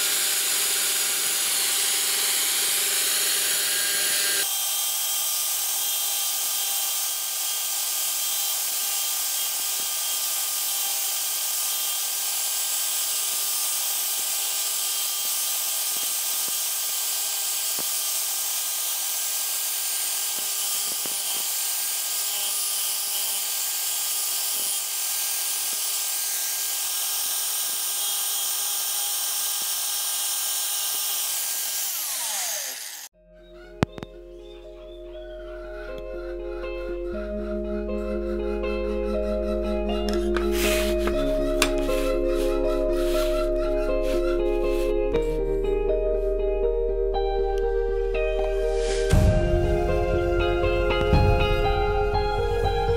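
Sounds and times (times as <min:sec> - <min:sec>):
angle grinder sanding: 0:00.0 - 0:33.2, 0:38.4 - 0:45.5.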